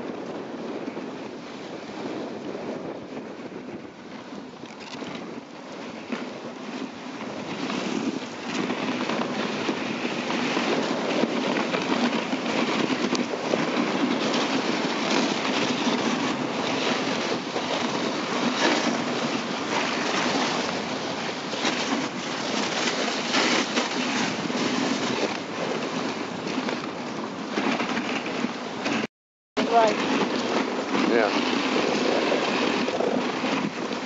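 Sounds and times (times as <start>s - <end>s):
sled runners scraping over snow: 0.0s - 34.0s.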